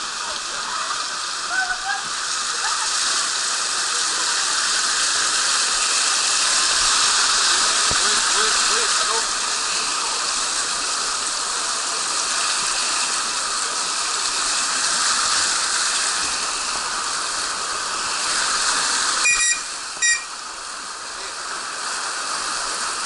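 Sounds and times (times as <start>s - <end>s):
water rushing down slide: 0.0s - 23.0s
whistle blasts: 19.2s - 20.3s.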